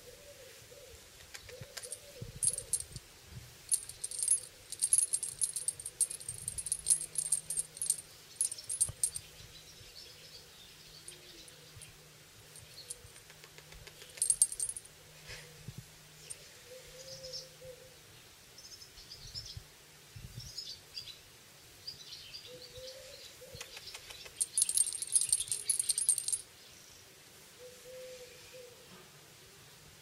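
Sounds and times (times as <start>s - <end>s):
high metallic jingling: 1.8s - 3.0s, 3.7s - 9.3s, 14.2s - 14.9s, 24.4s - 26.4s.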